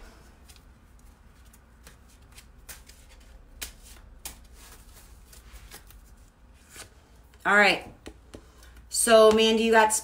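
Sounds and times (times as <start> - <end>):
cards shuffling clicks and rustles: 0.3 - 7.4.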